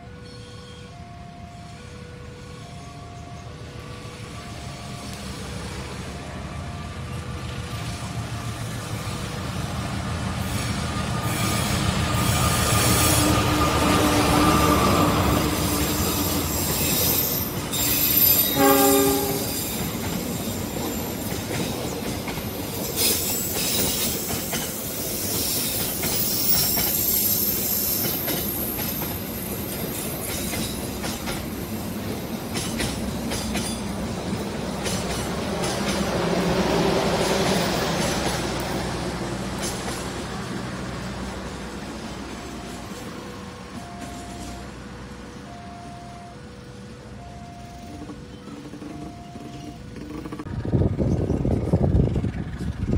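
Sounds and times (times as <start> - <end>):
diesel train engine rumble: 0.0 - 52.9
second train passing: 0.0 - 52.9
train wheels clicking over rail joints: 8.6 - 44.9, 47.8 - 52.9
locomotive horn blast: 17.7 - 19.8.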